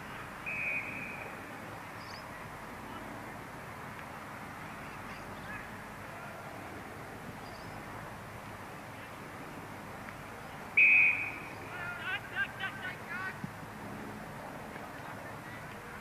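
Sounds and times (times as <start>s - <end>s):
loud high whistle: 0.4s - 1.3s, 10.8s - 11.4s
distant bird calls: 0.4s - 1.4s, 7.4s - 7.9s, 10.4s - 12.0s.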